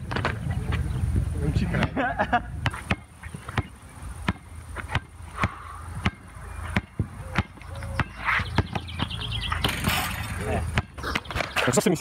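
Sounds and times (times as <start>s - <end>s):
basketball bouncing on hard court: 2.6s - 11.4s.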